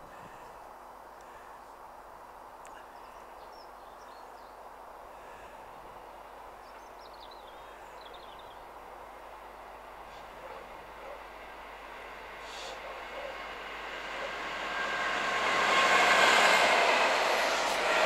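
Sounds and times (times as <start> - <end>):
small birds chirping: 6.6 - 8.7.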